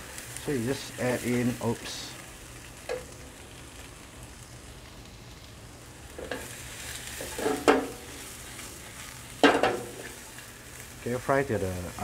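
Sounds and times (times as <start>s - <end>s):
food sizzling in a wok: 0.0s - 12.0s
food clattering in a tossed wok: 7.2s - 8.0s, 9.4s - 10.2s.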